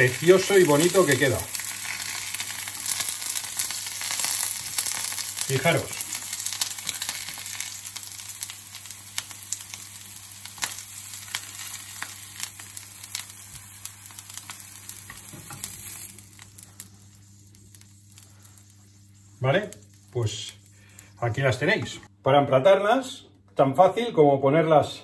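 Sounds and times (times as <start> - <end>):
oil sizzling in a frying pan: 0.0 - 21.2.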